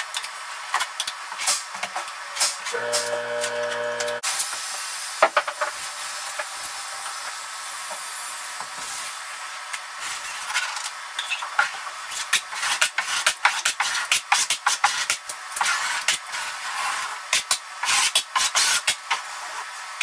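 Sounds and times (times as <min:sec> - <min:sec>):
chord of steady tones: 0:02.8 - 0:04.2
taping knife scraping mortar: 0:12.5 - 0:17.1.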